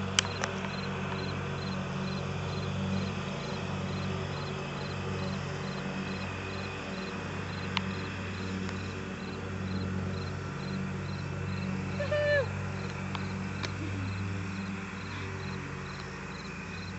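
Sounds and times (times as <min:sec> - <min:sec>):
insects chirping: 0:00.2 - 0:11.8, 0:12.8 - 0:16.9.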